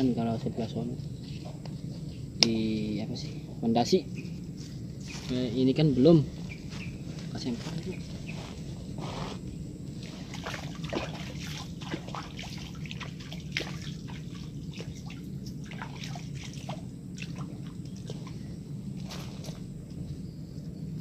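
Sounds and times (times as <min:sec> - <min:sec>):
pond water sloshing and dripping: 0:09.9 - 0:19.7.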